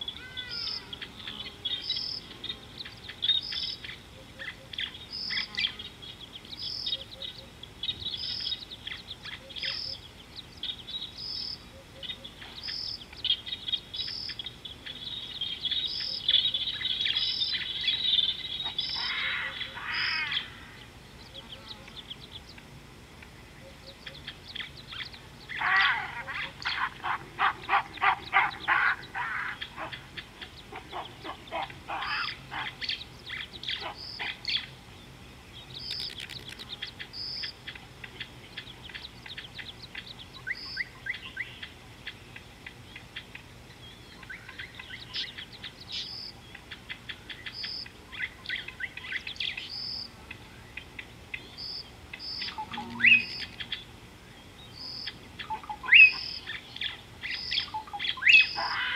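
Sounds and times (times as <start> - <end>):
birds chirping: 0.0 - 58.9
high whistled bird notes: 52.4 - 53.6.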